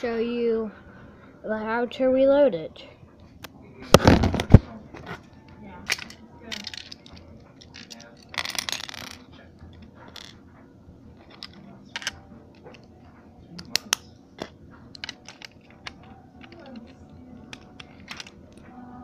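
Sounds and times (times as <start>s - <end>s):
plastic bricks clicking and clattering: 5.9s - 9.2s, 11.2s - 12.9s, 13.6s - 18.6s.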